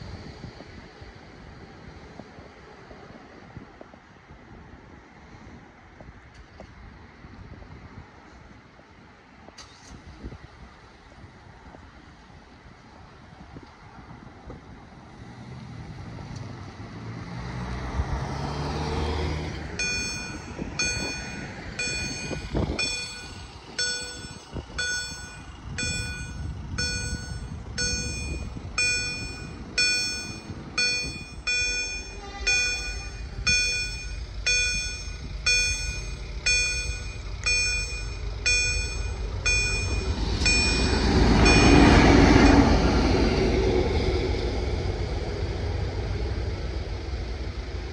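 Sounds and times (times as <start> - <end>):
train rushing rumble: 17.5 - 47.9
level crossing bell ringing: 19.8 - 42.1.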